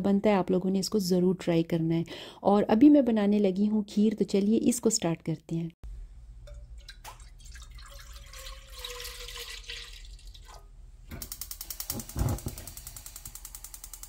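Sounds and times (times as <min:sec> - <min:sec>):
milk pouring into a pot: 0:06.5 - 0:10.7
gas hob igniter clicking: 0:11.1 - 0:14.0.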